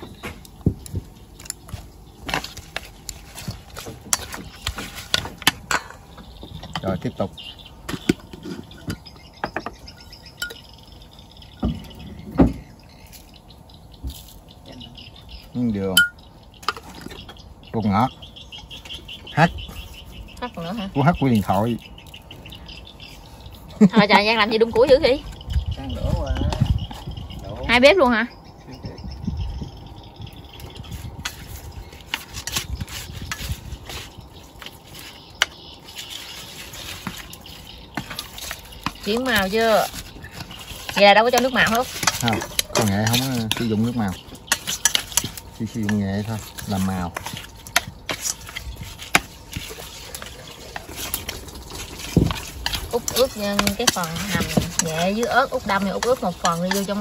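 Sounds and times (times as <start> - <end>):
wood fire crackling: 0.0 - 28.3, 29.8 - 57.0
faint liquid and pot sounds: 0.0 - 57.0
utensils clinking against dishes: 16.0 - 17.0, 35.9 - 57.0.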